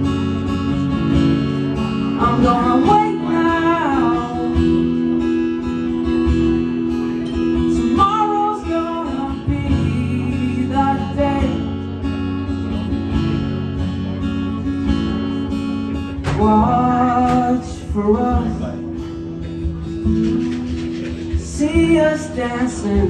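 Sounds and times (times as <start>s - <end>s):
acoustic guitar strumming and picking: 0.0s - 23.0s
person singing: 1.8s - 12.0s, 16.2s - 19.2s, 20.3s - 23.0s.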